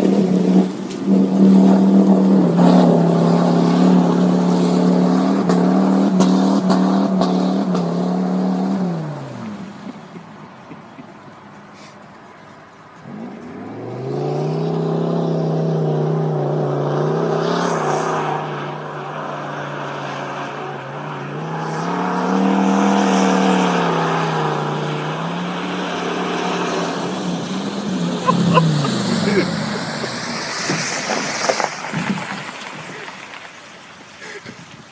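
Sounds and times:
truck engine under throttle: 0.0 - 11.1, 13.0 - 33.4
truck splashing through water: 13.8 - 34.7.

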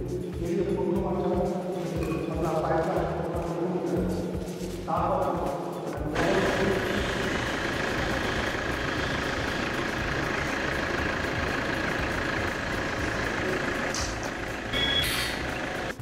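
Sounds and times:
truck engine idling: 6.1 - 16.0.

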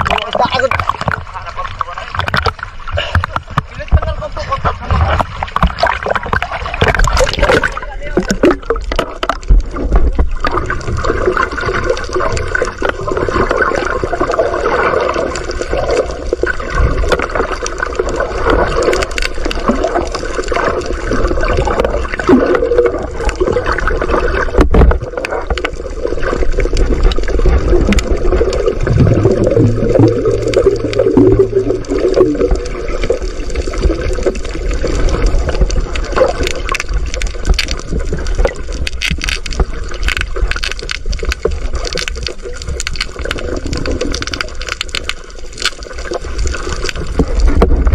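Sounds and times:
underwater gurgling and sloshing: 0.0 - 47.9
low steady hum: 28.0 - 33.4.

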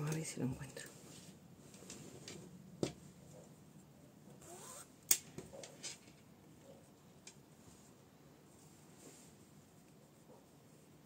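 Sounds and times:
rustling of sewing things: 0.0 - 11.0.

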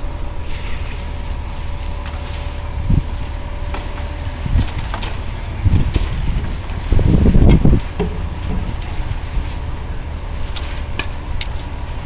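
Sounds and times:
wind buffeting microphone: 2.6 - 10.2.

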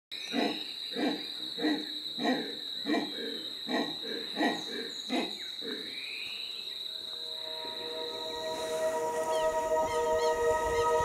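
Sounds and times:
steady high whine: 6.9 - 11.0.

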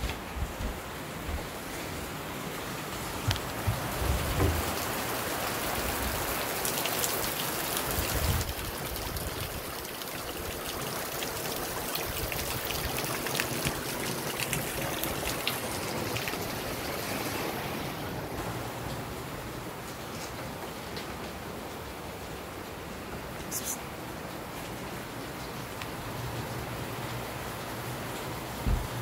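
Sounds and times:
steady rain: 0.0 - 29.0
raindrops ticking: 3.2 - 16.9
low handling thumps: 3.5 - 4.9, 28.6 - 29.0.

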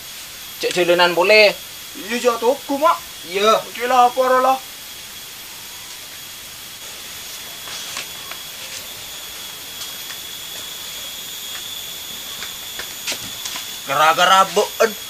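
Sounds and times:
steady background hiss: 0.0 - 15.0
flip-flop footsteps on dirt: 12.4 - 13.8.

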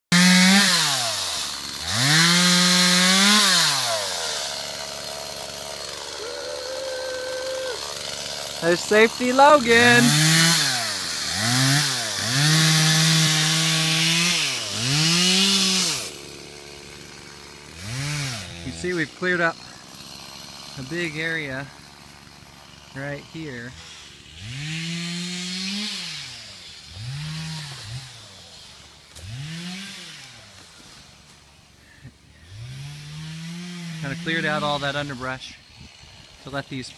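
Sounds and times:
chainsaw revving and idling: 0.1 - 36.9.

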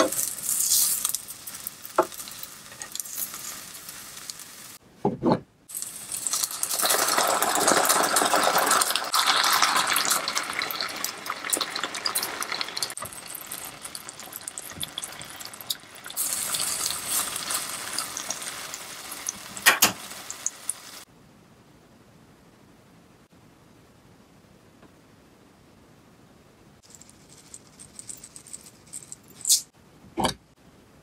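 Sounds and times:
sauce sizzling in a frying pan: 0.0 - 4.8, 5.7 - 21.1.

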